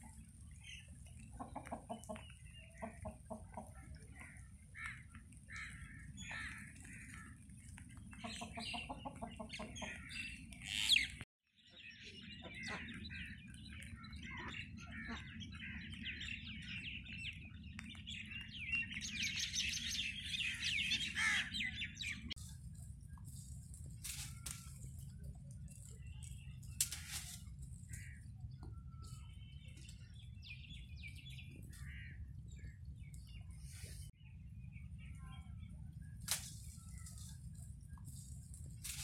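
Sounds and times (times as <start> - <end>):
small birds chirping: 0.0 - 39.0
chickens clucking: 0.1 - 4.5, 6.2 - 11.0.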